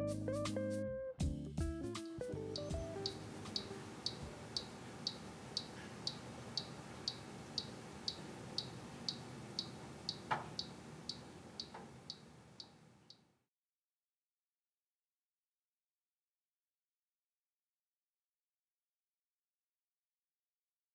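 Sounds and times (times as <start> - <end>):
faint low hum: 2.4 - 13.3
timer dial ticking: 2.6 - 12.8.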